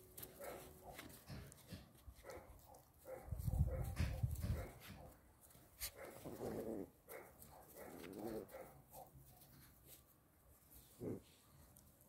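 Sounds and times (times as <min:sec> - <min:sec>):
puppy growling: 0:06.2 - 0:07.0, 0:07.8 - 0:08.6, 0:11.0 - 0:11.4.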